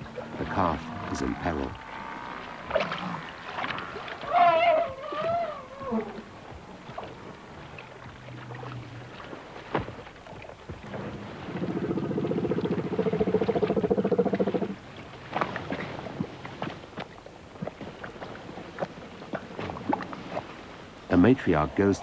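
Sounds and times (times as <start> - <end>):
low throbbing elephant call: 0.0 - 9.4, 10.8 - 14.8
high wavering elephant call: 4.2 - 6.2.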